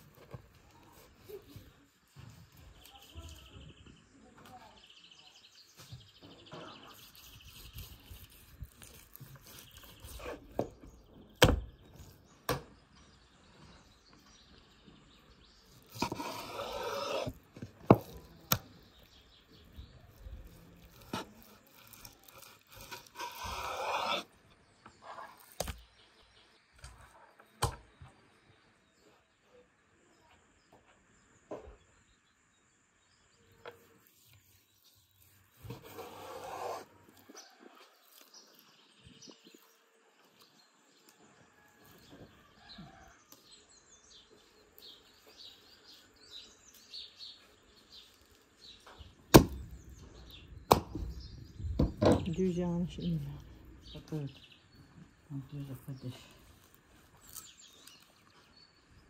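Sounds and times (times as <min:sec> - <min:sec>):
birds chirping faintly: 0:00.0 - 0:59.0
knife slicing meat: 0:06.8 - 0:10.7, 0:15.7 - 0:19.1, 0:20.1 - 0:24.4, 0:35.6 - 0:37.2
cleaver blow on wooden block: 0:22.4 - 0:24.3.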